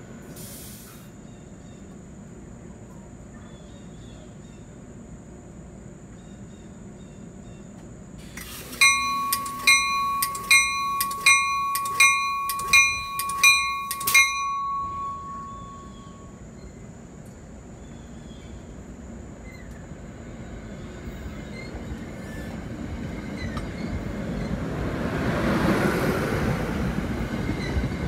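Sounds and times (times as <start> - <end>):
railroad bell ringing: 8.4 - 16.8.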